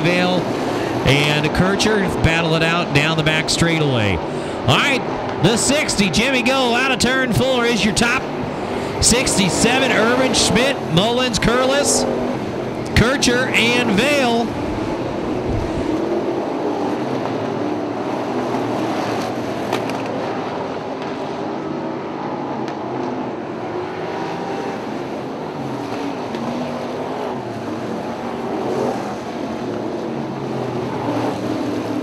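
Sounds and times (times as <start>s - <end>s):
racing car engines: 0.0s - 32.0s.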